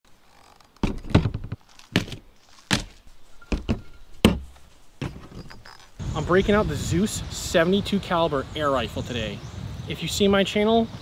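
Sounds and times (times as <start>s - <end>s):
gear thunking on plastic table: 0.8s - 5.7s.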